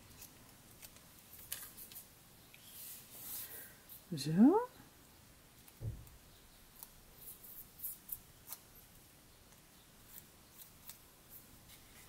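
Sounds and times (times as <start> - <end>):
faint cardstock ticks and rustles: 0.0 - 4.1.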